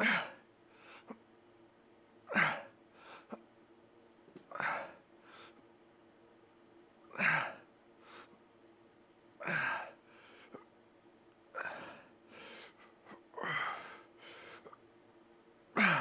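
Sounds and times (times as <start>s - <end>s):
man breathing in: 11.6s - 14.8s.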